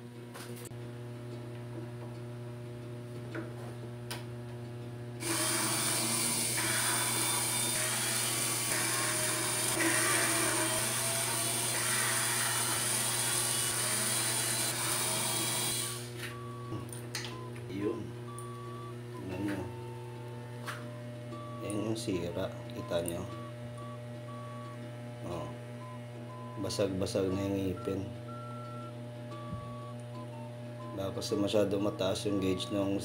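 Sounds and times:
electric screwdriver whine: 0:05.2 - 0:16.5.

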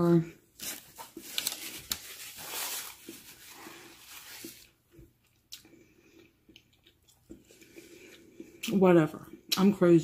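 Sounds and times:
paper wrapper crinkling: 0:00.6 - 0:04.8
chewing: 0:03.0 - 0:08.7.

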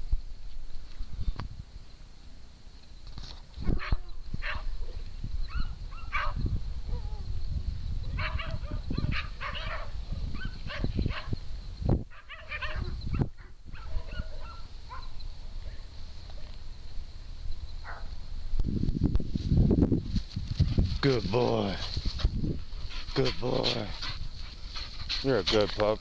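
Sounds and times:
dogs barking and yipping: 0:03.6 - 0:07.2, 0:08.1 - 0:11.4, 0:12.1 - 0:15.8, 0:17.8 - 0:18.2, 0:22.2 - 0:26.0
low microphone rumble: 0:03.6 - 0:25.3.

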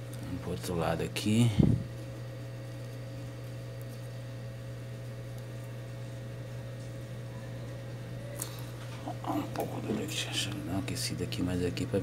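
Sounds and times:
hot air blower humming: 0:00.0 - 0:03.1, 0:05.8 - 0:12.0.

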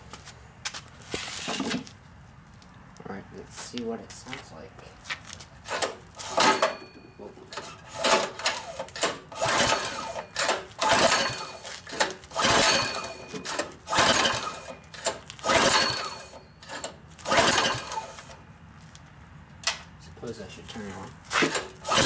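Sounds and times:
engine spinning with rasping whir: 0:05.6 - 0:18.4, 0:21.2 - 0:22.0
recoil starter pulled: 0:05.7 - 0:06.8, 0:07.5 - 0:18.4, 0:21.3 - 0:22.0.

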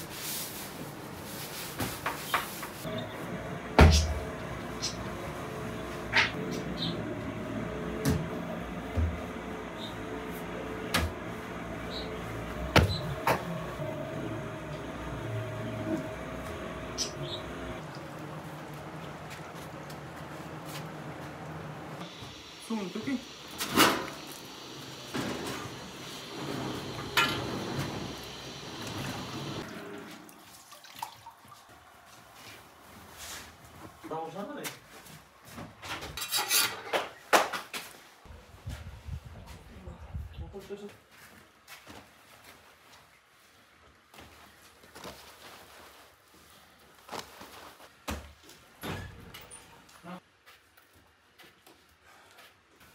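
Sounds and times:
wood fire rushing in oven: 0:03.6 - 0:29.7.

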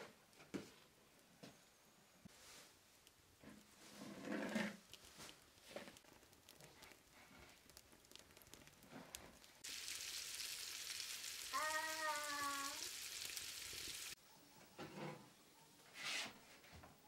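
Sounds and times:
fish sizzling in oil: 0:04.7 - 0:14.2.

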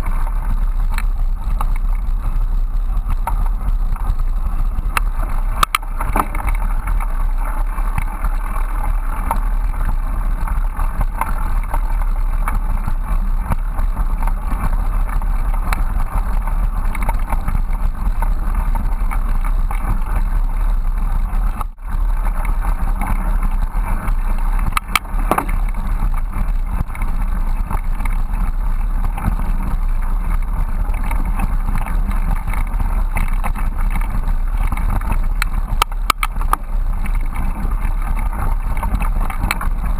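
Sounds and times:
bicycle rolling on dirt trail: 0:00.0 - 0:39.9.

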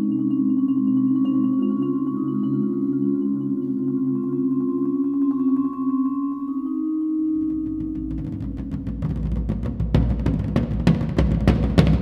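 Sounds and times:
drums in a fast driving rhythm: 0:07.7 - 0:12.0.

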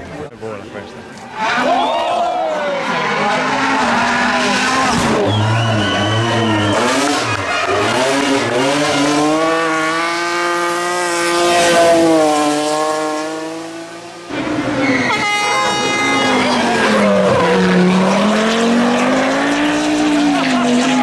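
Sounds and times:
rally car engines revving: 0:02.6 - 0:21.0
tyres squealing: 0:14.6 - 0:17.9.

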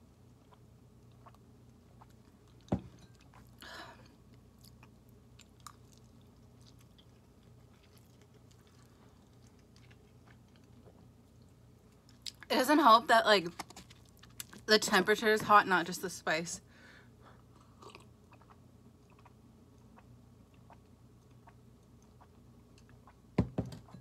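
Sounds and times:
person chewing noodles: 0:00.4 - 0:12.5, 0:13.8 - 0:14.6, 0:17.4 - 0:23.2.

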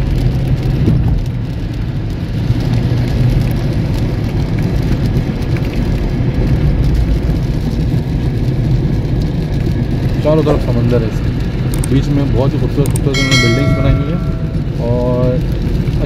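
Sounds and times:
car engine and tyre rumble: 0:00.0 - 0:16.0
light rain spattering on car: 0:00.0 - 0:16.0.

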